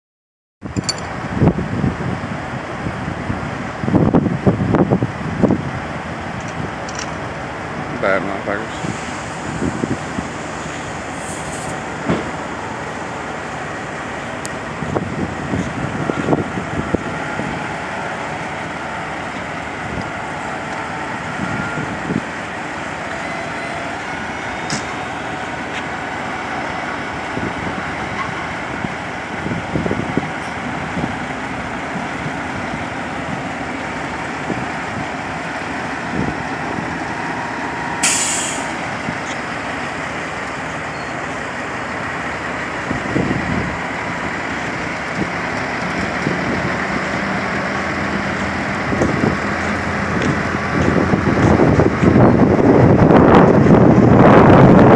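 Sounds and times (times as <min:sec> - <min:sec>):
diesel truck engine running: 0:00.6 - 0:54.9
air brake hiss: 0:08.8 - 0:09.6, 0:38.0 - 0:38.8.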